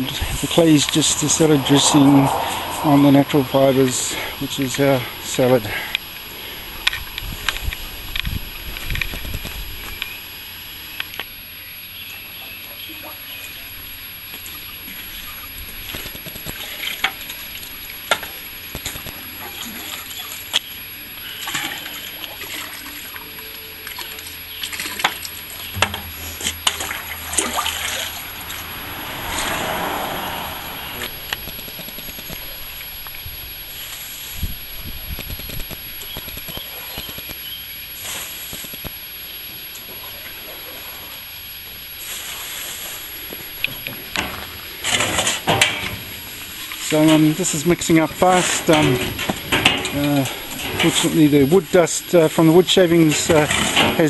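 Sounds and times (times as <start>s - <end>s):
clay slurry sloshing: 26.2s - 28.6s.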